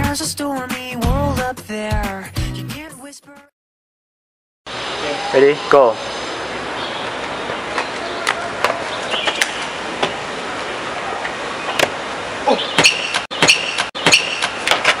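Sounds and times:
outdoor hiss: 0:04.7 - 0:07.8
sneakers slapping on concrete: 0:07.8 - 0:10.2.

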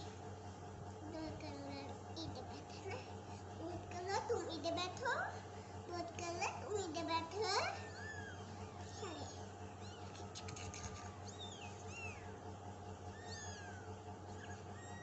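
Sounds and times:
steady low hum: 0:00.0 - 0:15.0
kittens mewing: 0:07.4 - 0:15.0.

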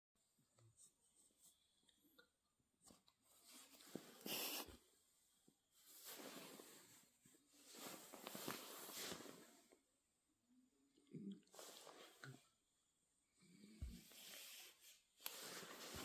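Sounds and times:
dog snuffling breaths: 0:04.2 - 0:04.7
fabric rustling: 0:05.9 - 0:09.6, 0:14.4 - 0:16.0.

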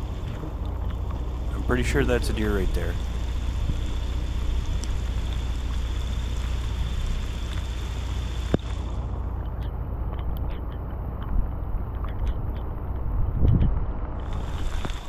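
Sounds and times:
low vehicle rumble: 0:00.0 - 0:15.0
rain pattering on a car: 0:00.1 - 0:09.0.

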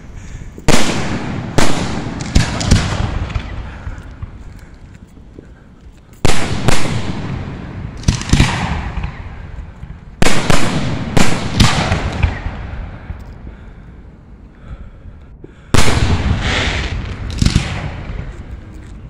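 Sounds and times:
rumble after bangs: 0:00.0 - 0:05.0, 0:06.2 - 0:14.0.

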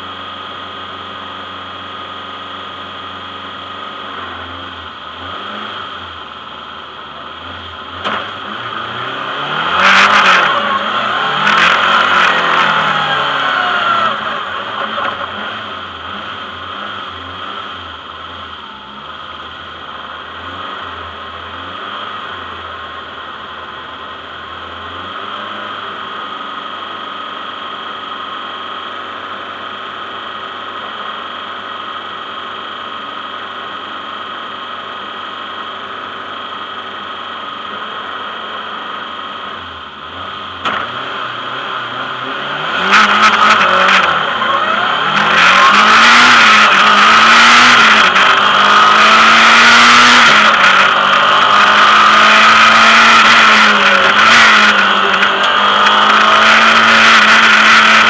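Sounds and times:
car engine revving and accelerating: 0:01.6 - 0:19.1, 0:19.8 - 0:23.1, 0:37.6 - 0:58.0.

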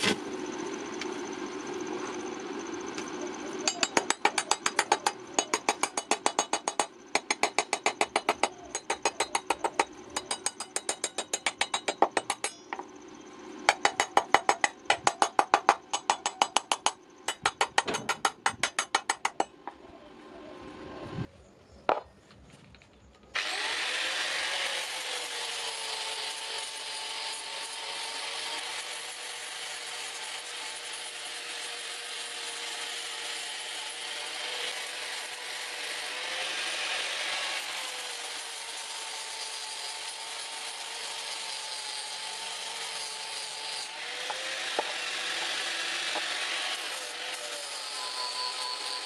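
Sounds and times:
angle grinder grinding steel: 0:23.4 - 0:49.0.

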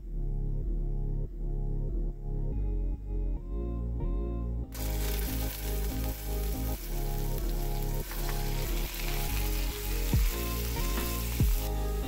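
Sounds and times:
background music: 0:00.0 - 0:12.0
meat sizzling in hot oil: 0:04.8 - 0:12.0.

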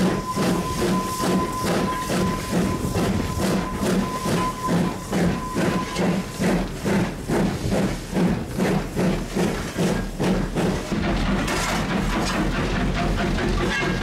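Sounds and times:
steam locomotive chuffing: 0:00.0 - 0:14.0.

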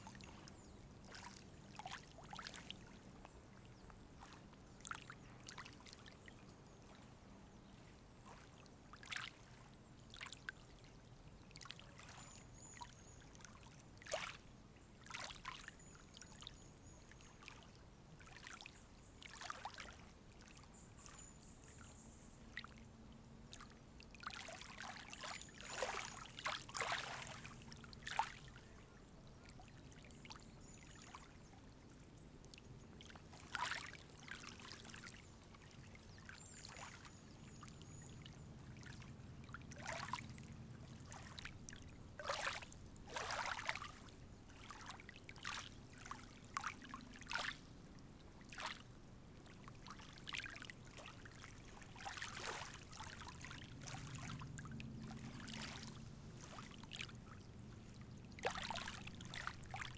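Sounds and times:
faint low hum: 0:00.0 - 0:59.9
water lapping at shore: 0:00.0 - 0:59.9.

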